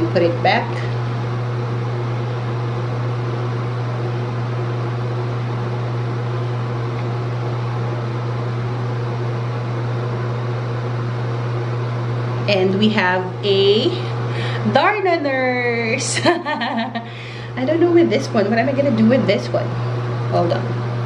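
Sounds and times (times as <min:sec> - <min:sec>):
motorised appliance humming: 0:00.0 - 0:21.0.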